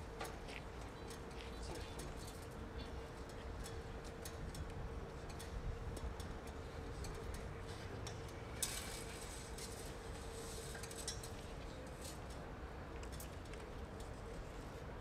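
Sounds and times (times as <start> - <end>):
small clicks of objects handled: 10.6 - 14.6.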